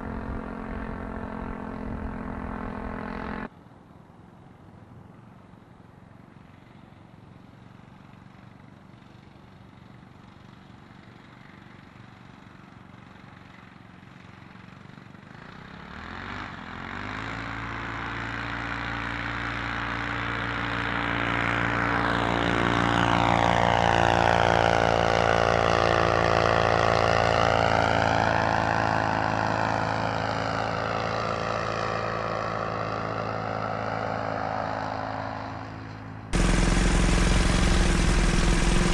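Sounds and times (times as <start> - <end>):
small engine revving up: 0.0 - 3.5, 15.1 - 38.9.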